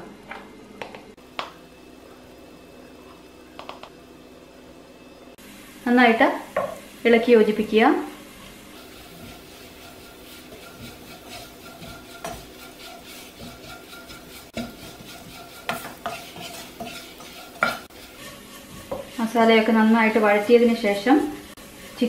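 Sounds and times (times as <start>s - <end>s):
low sizzle: 0.0s - 22.0s
wooden spatula scraping a pot: 8.3s - 22.0s.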